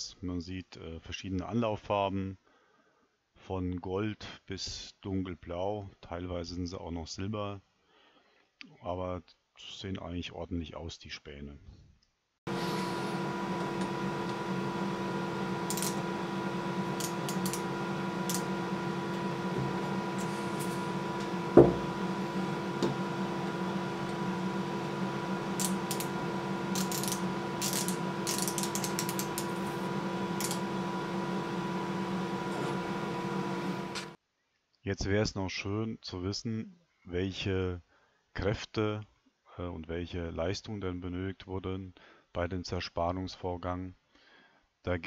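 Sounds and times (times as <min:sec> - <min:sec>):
background hum: 0:12.5 - 0:34.2
micrometer ratchet clicking: 0:15.7 - 0:16.0, 0:17.0 - 0:17.6, 0:25.6 - 0:26.1, 0:26.7 - 0:29.5, 0:30.4 - 0:30.6
dull knock: 0:21.6 - 0:21.8.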